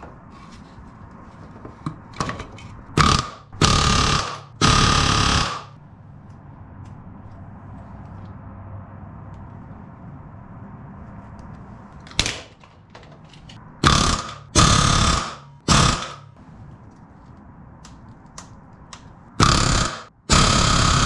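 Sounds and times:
pneumatic rivet gun hammering: 3.0 - 5.7, 13.8 - 16.3, 19.4 - 21.0.

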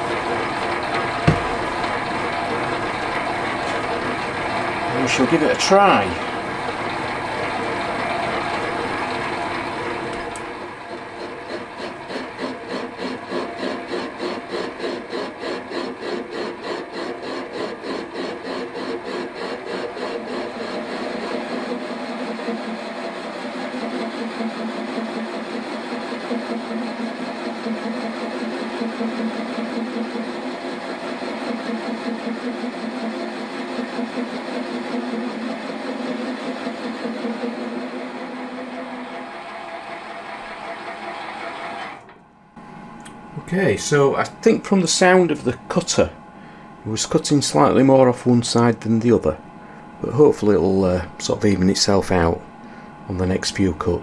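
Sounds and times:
lathe cutting metal with pulse: 0.0 - 42.1.

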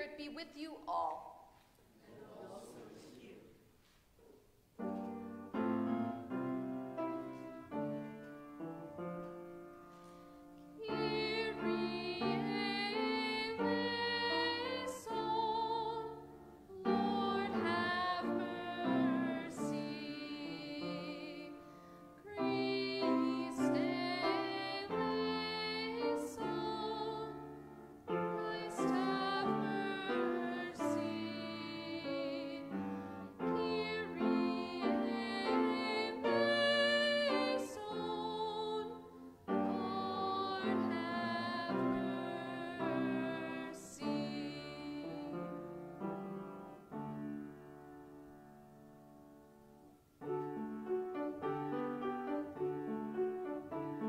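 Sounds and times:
piano playing: 4.8 - 54.0
person singing with vibrato: 10.8 - 21.6, 22.2 - 45.6.

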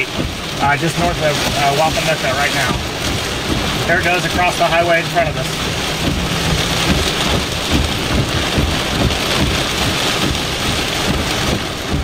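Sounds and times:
heavy rain on vehicle windshield: 0.0 - 12.0
low thunder rumble: 2.7 - 12.0.

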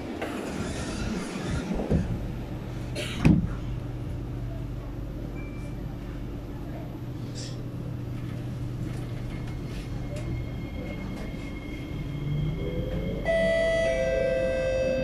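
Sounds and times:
train traction motor whine: 7.7 - 15.0.

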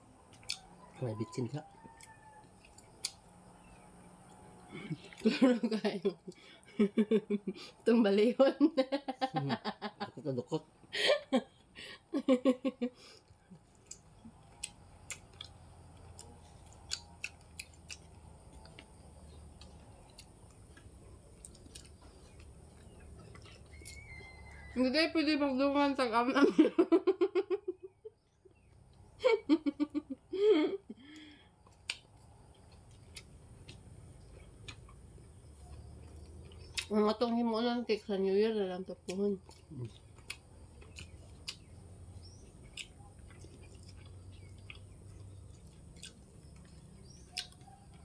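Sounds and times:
eating clicks and smacks: 2.0 - 3.3, 13.4 - 24.0, 31.1 - 35.0, 35.7 - 36.9, 39.0 - 41.8, 42.5 - 48.0
person laughing: 4.8 - 7.7, 8.6 - 13.0, 29.2 - 31.2.

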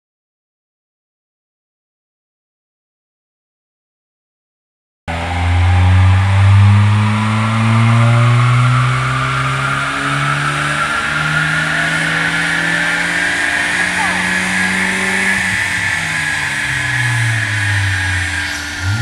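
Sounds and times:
car engine revving under load: 5.1 - 19.0
high rising whine: 5.1 - 19.0.

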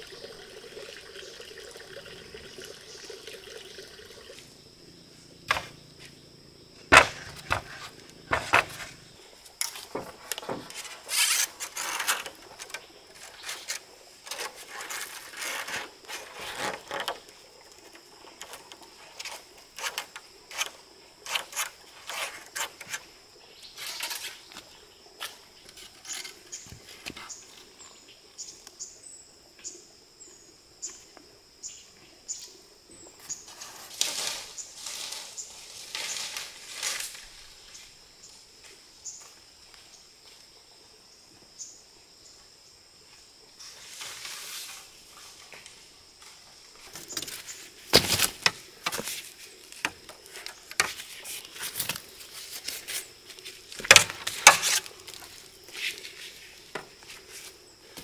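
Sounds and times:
knocks and rustling from handwork: 6.9 - 9.0, 9.6 - 17.2, 46.9 - 52.8, 53.8 - 56.0.

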